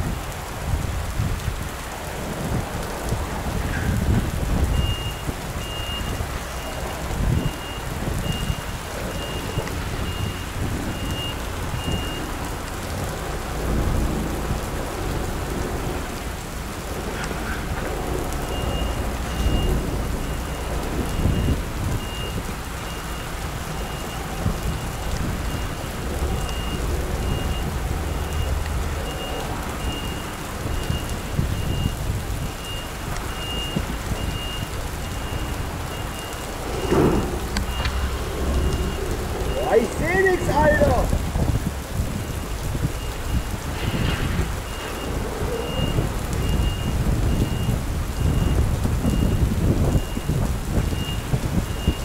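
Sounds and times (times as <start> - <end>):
diesel truck rumble: 0.0 - 52.0
heavy rain pattering: 0.0 - 52.0
reversing alarm beeping: 4.7 - 12.3, 18.4 - 41.1, 42.1 - 52.0.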